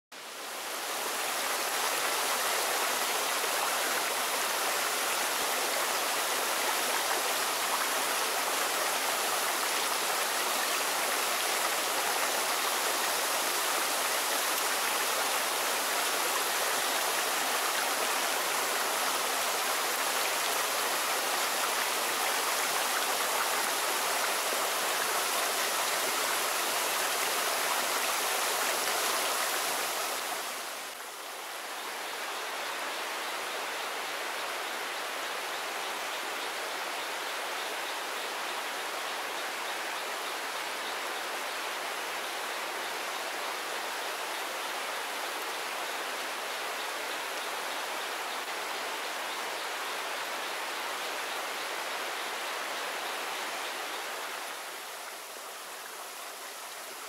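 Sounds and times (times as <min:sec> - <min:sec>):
waterfall rushing: 0:00.2 - 0:31.0.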